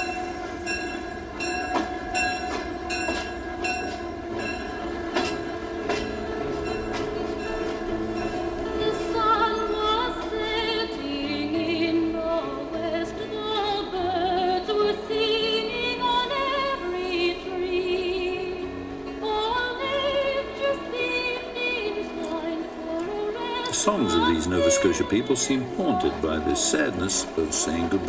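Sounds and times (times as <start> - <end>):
operatic singing voice: 19.4 - 28.0.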